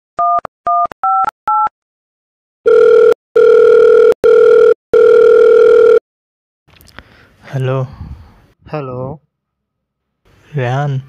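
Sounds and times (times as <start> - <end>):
telephone keypad tones: 2.7 - 6.0
telephone ringback tone: 2.7 - 6.0.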